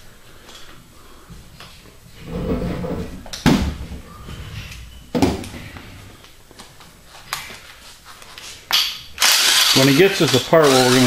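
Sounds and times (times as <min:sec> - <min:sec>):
low scraping rumble: 0:02.2 - 0:03.2.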